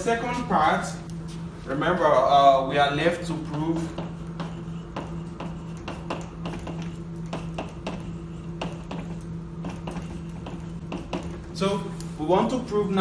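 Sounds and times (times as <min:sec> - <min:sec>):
steady low hum: 0:00.0 - 0:13.0
chalk tapping and scratching: 0:03.5 - 0:13.0.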